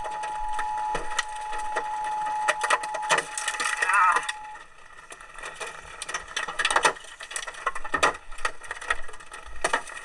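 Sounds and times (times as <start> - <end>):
hailstones banging on a car: 2.5 - 10.0.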